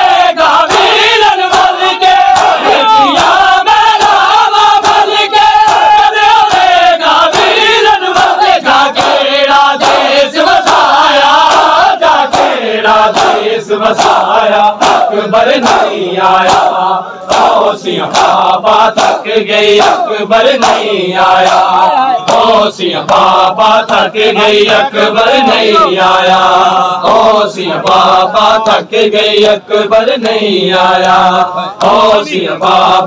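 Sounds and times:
crowd of men chanting: 0.0 - 33.0
hands slapping bare chests: 0.6 - 24.1.

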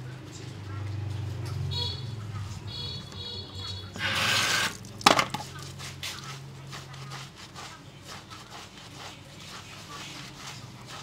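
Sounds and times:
hands scrubbing lathered hair: 5.5 - 11.0.

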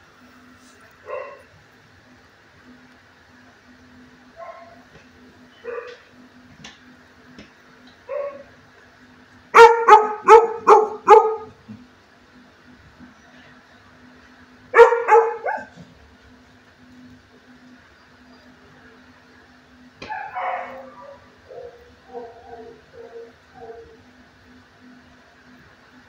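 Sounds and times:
dog barking: 1.0 - 1.5, 4.4 - 4.8, 5.6 - 6.0, 8.1 - 8.5, 9.6 - 11.6, 14.8 - 15.8, 20.0 - 24.0.

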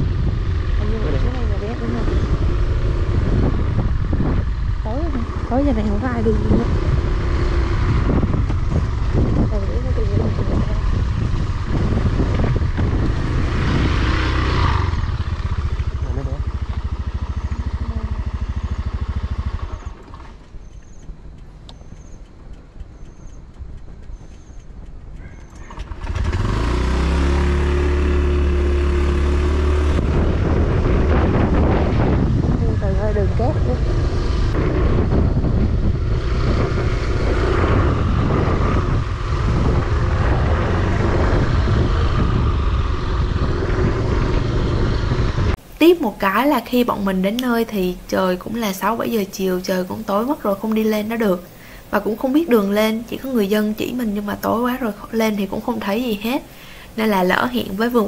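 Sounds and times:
motorbike engine running: 0.0 - 45.6
wind rushing over microphone: 0.0 - 58.0.

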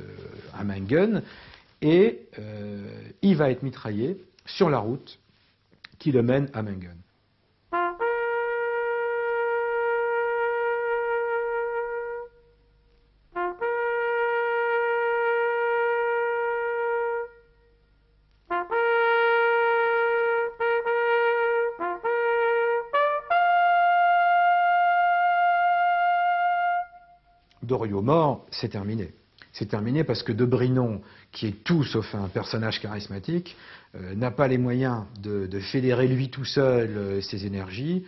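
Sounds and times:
solo trumpet playing: 7.7 - 27.6.

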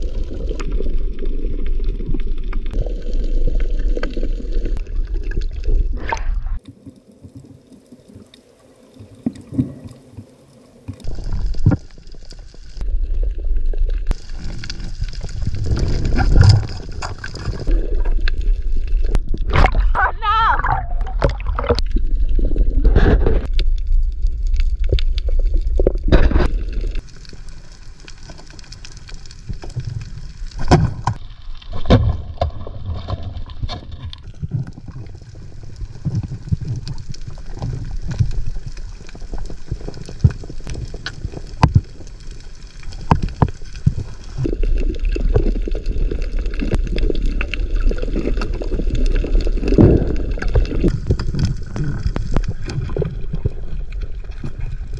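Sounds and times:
sharp underwater clicks and crackles: 0.0 - 20.0, 20.6 - 54.9
seawater sloshing and gurgling: 14.1 - 23.5
muffled underwater sound: 19.3 - 21.8.

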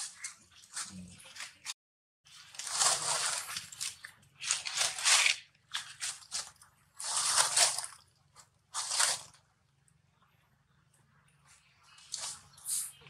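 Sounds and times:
dry leaves rustling and crunching: 2.3 - 8.0, 8.7 - 9.4.

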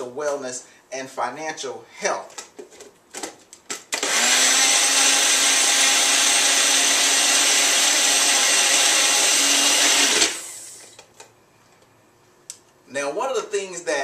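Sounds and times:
blender running: 4.0 - 10.9.

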